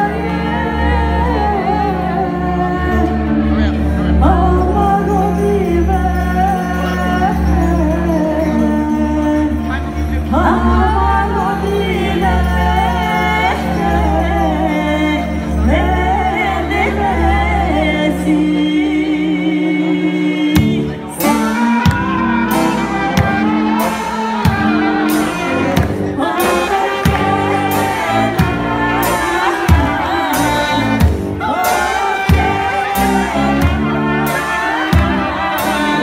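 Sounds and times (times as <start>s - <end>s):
women singing: 0.0s - 36.0s
brass band playing: 9.2s - 36.0s
bass drum beat: 21.5s - 36.0s.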